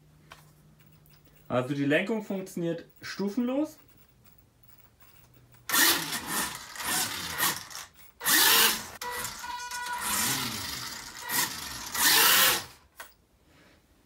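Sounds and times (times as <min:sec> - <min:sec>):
toy car electric motor whining: 0:05.7 - 0:12.9.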